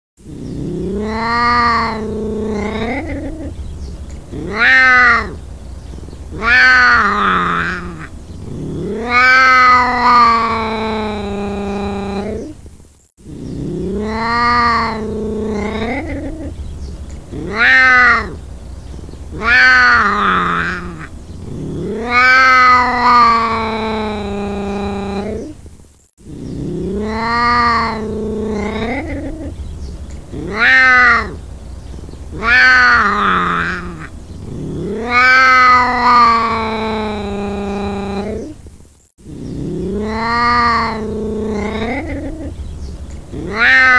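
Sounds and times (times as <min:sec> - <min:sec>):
cat meowing and yowling: 0:00.9 - 0:03.6, 0:04.3 - 0:05.4, 0:06.3 - 0:08.1, 0:08.7 - 0:12.4, 0:13.9 - 0:16.6, 0:17.3 - 0:18.4, 0:19.3 - 0:21.1, 0:21.8 - 0:25.5, 0:26.9 - 0:29.6, 0:30.3 - 0:31.4, 0:32.3 - 0:38.6, 0:39.8 - 0:42.6, 0:43.3 - 0:43.9.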